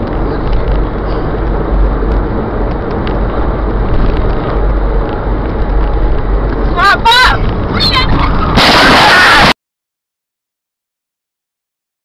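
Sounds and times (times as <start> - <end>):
vehicle road and engine rumble: 0.0 - 9.6.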